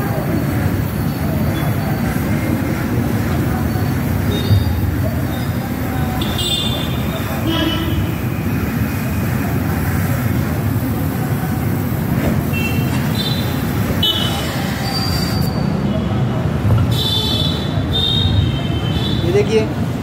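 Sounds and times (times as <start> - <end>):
short high-pitched squeals: 12.5 - 15.8.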